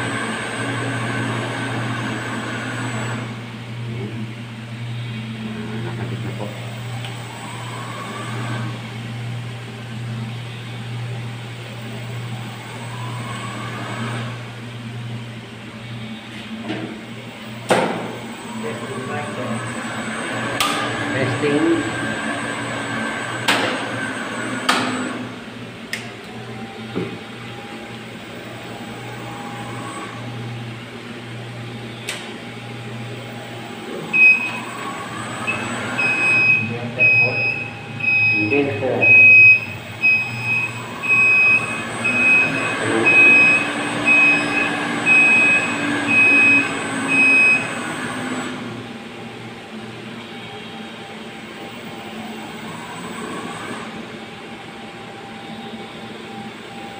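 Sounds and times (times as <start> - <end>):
machinery hum: 0.0 - 56.9
electronic controller beeping: 35.5 - 47.7.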